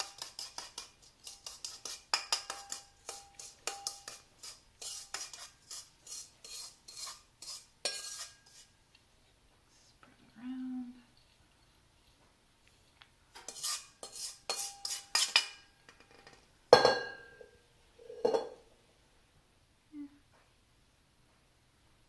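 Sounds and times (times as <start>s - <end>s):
metal spoon scraping a steel bowl: 0.0s - 8.7s, 13.4s - 16.4s.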